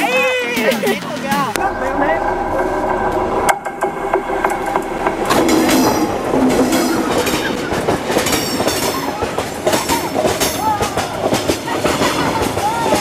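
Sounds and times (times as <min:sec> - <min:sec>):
train wheels clattering on track: 0:03.1 - 0:13.0.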